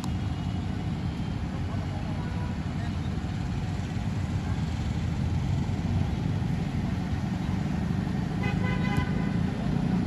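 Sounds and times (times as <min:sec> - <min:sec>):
vehicle horn toot: 0:08.4 - 0:09.4.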